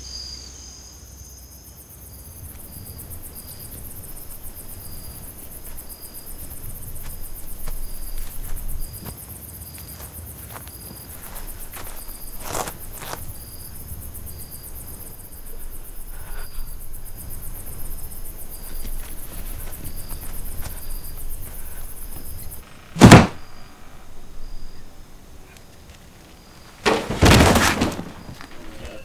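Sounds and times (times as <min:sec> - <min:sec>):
crickets chirping: 0:00.0 - 0:29.0
loud heavy thump: 0:22.9 - 0:23.6, 0:26.8 - 0:28.4.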